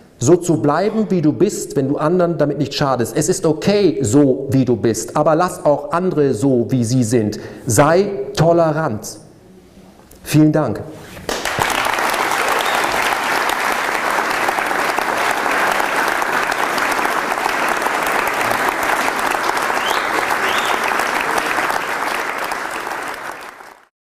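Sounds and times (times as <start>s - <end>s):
audience applauding: 11.3s - 23.9s.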